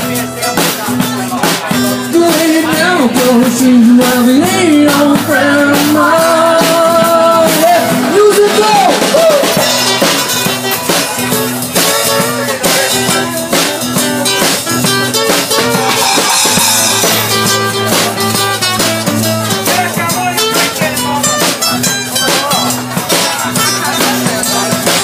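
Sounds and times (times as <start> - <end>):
acoustic guitar strumming: 0.0 - 25.0
drum kit beat: 0.0 - 25.0
person singing: 1.6 - 9.6.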